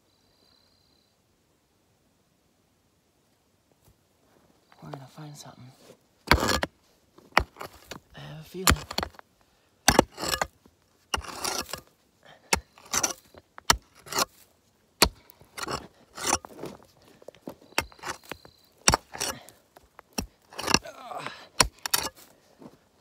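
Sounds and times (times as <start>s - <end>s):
digging tool scraping rocky dirt: 4.8s - 23.0s.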